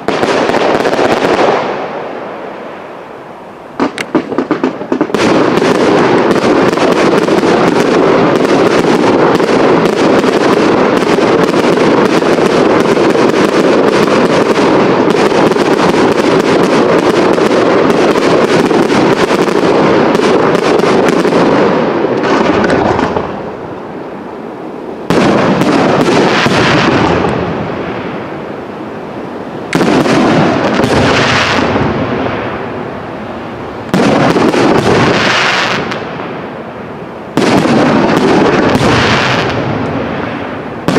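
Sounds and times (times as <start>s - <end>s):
fireworks bangs and crackling: 0.0s - 40.9s
heavy firework bursts: 0.0s - 40.9s.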